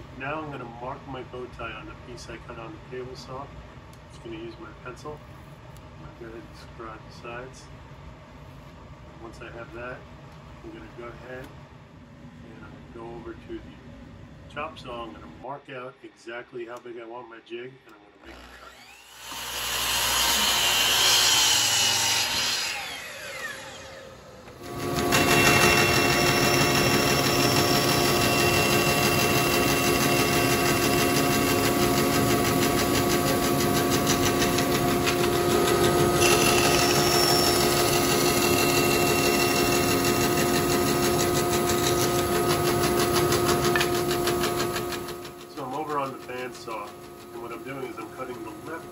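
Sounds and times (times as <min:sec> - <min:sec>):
bandsaw humming: 0:18.2 - 0:48.9
miter saw cutting plywood: 0:18.2 - 0:48.9.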